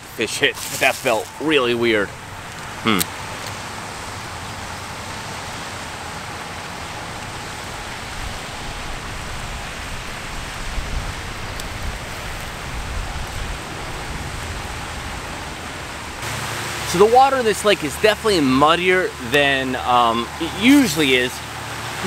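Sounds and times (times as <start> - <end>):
fountain spray splashing: 0.0 - 22.0.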